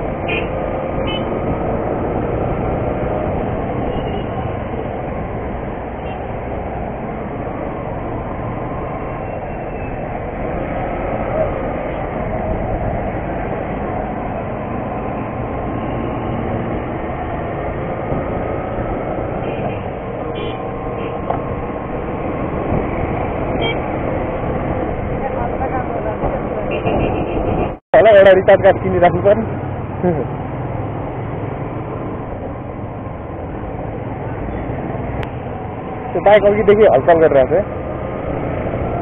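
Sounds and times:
rushing air: 0.0s - 25.2s.

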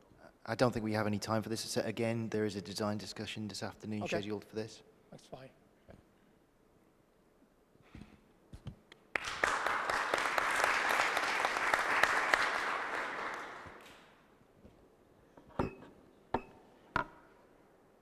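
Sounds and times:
audience applauding: 9.1s - 14.2s
sharp knocks: 15.5s - 17.3s.

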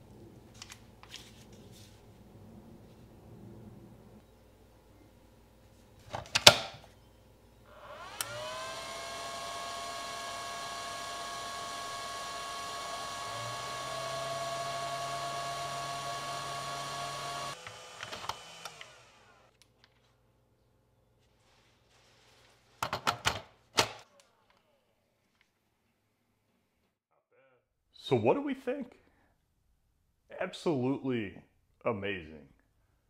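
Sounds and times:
charger cooling fan whine: 7.7s - 17.6s.

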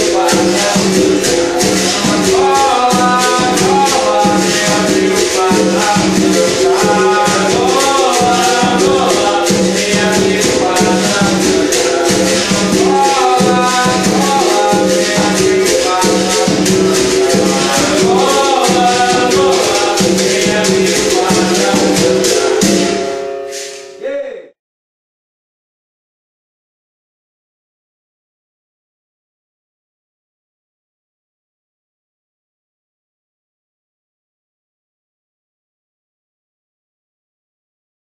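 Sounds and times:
hand drum: 0.0s - 24.0s.

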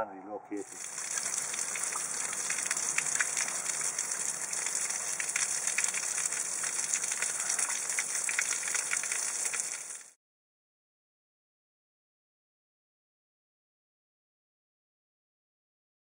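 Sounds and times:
steady rushing hiss: 0.6s - 10.1s
fine crackles and ticks: 0.7s - 10.2s.

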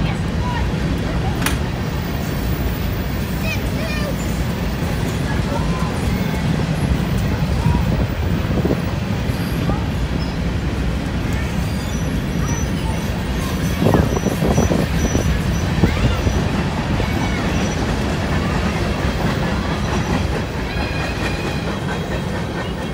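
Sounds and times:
train wheels rumbling on rail: 0.0s - 22.9s
clacks over rail joints: 0.9s - 1.8s.

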